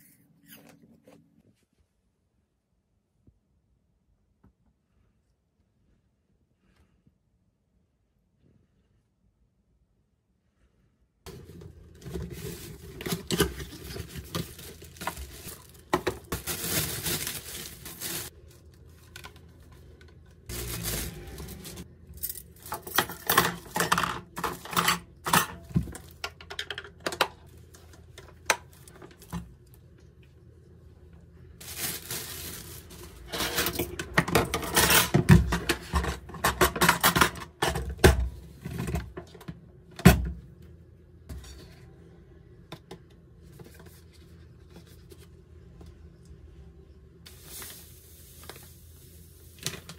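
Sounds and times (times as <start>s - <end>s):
plastic packaging rustling: 11.3s - 23.8s, 31.6s - 35.5s, 47.3s - 49.9s.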